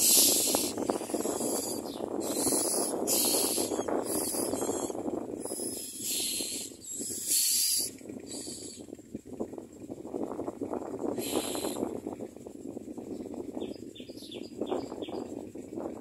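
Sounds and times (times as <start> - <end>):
nestlings hissing begging calls: 0.0 - 8.8, 11.1 - 11.9.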